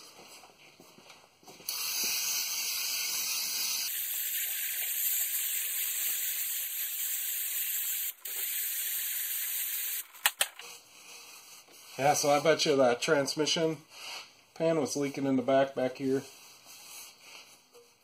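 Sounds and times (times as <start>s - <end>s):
aerosol can spraying hiss: 1.7s - 10.1s.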